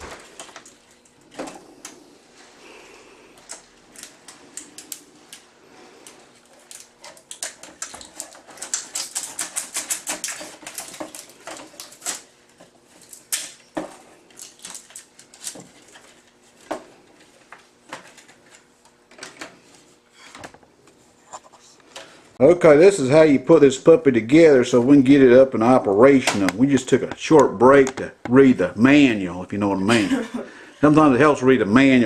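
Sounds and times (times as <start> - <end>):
plastic wrap crinkling: 6.2 - 18.7
sharp clicks and knocks: 26.2 - 28.4.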